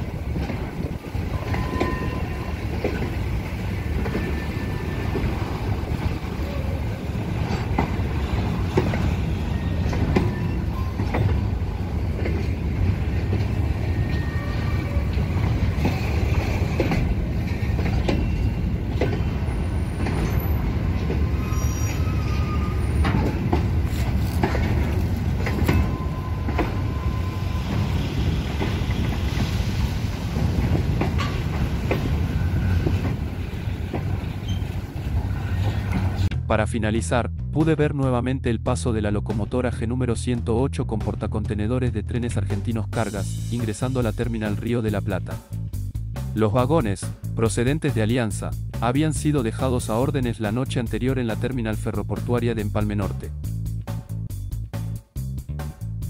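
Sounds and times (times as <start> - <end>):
wheels clicking over rail joints: 0.0 - 36.3
train wheels rumbling on rails: 0.0 - 36.4.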